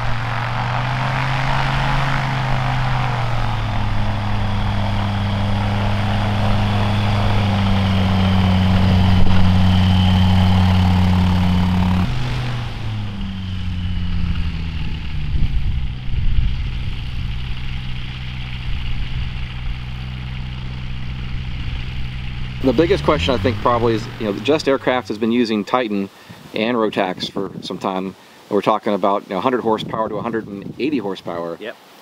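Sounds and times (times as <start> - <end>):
aircraft engine and propeller running: 0.0 - 25.2.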